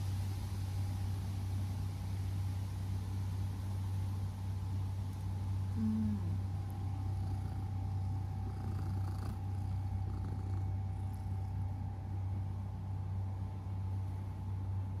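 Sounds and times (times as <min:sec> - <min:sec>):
cat purring: 0:05.7 - 0:12.3.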